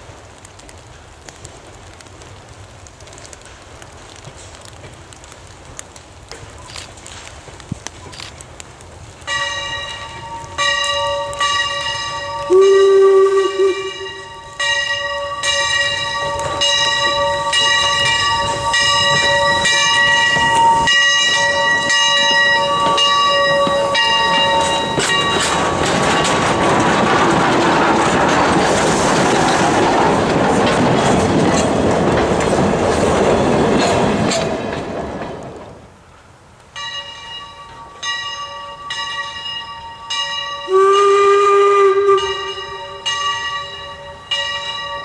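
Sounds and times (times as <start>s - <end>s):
train wheels on rails: 0.0s - 45.0s
locomotive bell ringing: 9.3s - 27.2s, 36.7s - 45.0s
steam whistle note: 12.4s - 14.6s, 40.6s - 43.2s.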